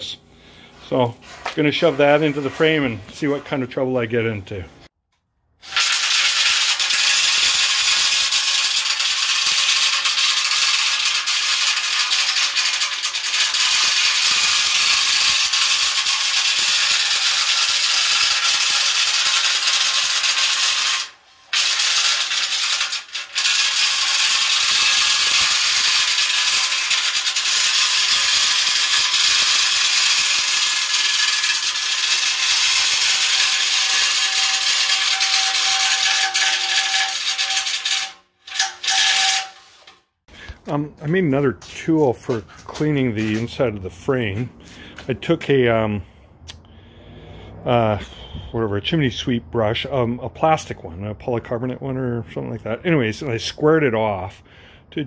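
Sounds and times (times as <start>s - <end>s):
chain rattling inside steel rail: 5.7s - 40.0s.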